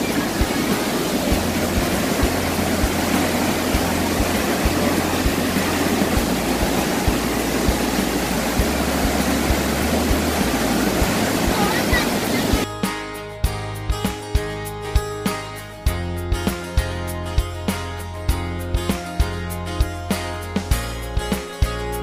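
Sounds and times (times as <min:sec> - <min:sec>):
waterfall rushing: 0:00.0 - 0:12.7.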